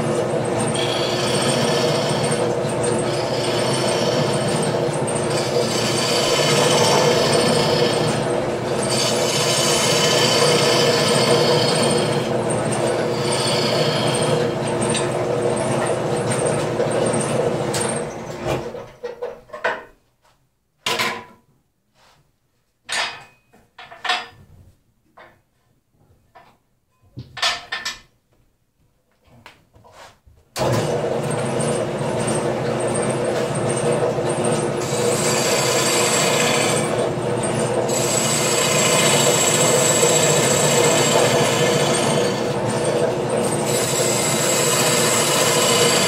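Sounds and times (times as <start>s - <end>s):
wood lathe humming: 0.0s - 18.2s, 30.6s - 46.0s
gouge scraping wood: 0.8s - 2.3s, 5.3s - 8.2s, 13.1s - 14.3s
tools knocking and clattering: 18.8s - 20.0s, 20.8s - 21.4s, 22.8s - 24.5s, 25.1s - 25.5s, 26.2s - 28.2s.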